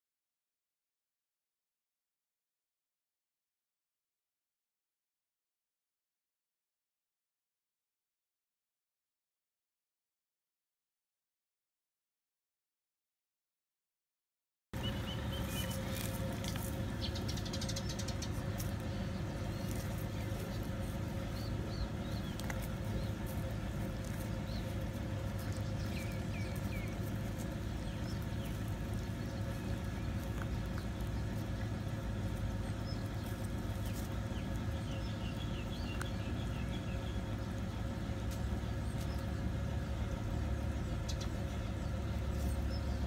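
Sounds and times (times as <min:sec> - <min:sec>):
low mechanical hum: 0:14.8 - 0:43.0.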